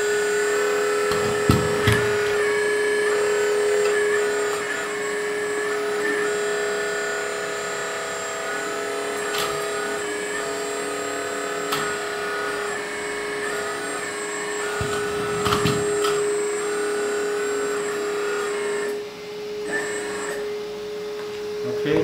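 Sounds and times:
hydraulic pump humming: 0.0s - 22.0s
loud clunk: 1.1s - 2.4s.

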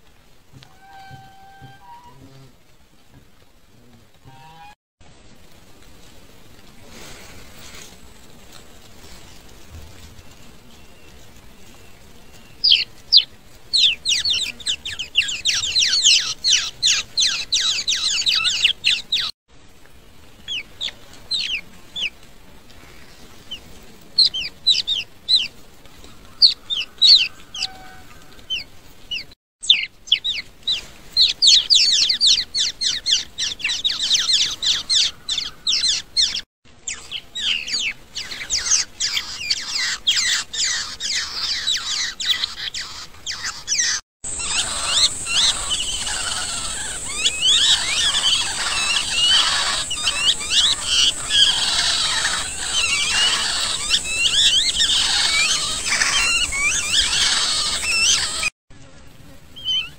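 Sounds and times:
nestling birds cheeping: 10.2s - 19.4s, 26.3s - 58.5s.

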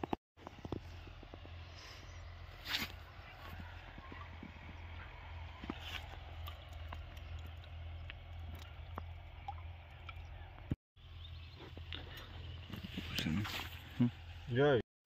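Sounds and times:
liquid trickling into bucket: 5.7s - 10.4s.

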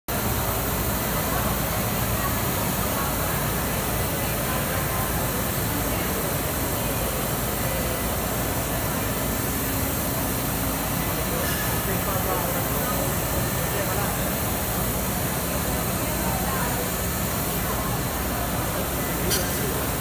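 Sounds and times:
indistinct crowd chatter: 0.1s - 20.0s.

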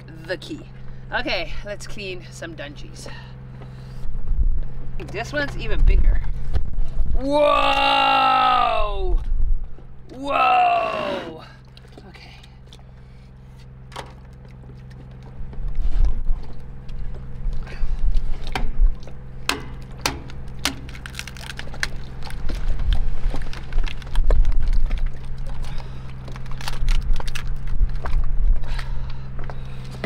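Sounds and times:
uneven low rumble: 0.0s - 7.6s, 8.5s - 10.3s, 11.4s - 30.0s
steady low hum: 0.0s - 30.0s
crab shells cracking: 19.5s - 28.1s.

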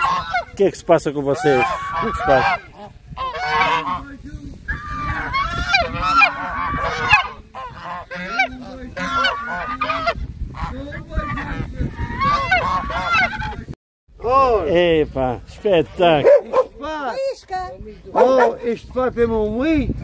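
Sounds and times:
geese honking: 0.0s - 13.8s.

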